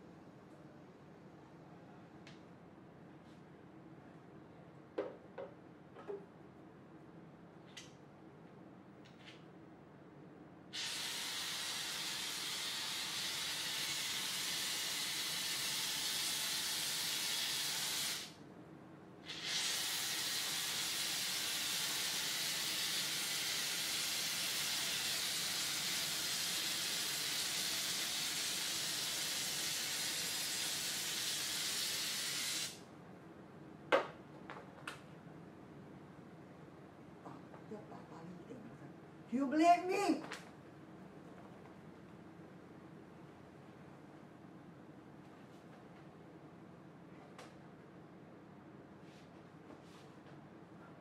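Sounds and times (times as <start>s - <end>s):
aerosol can spraying foam: 10.8s - 18.3s, 19.3s - 32.8s.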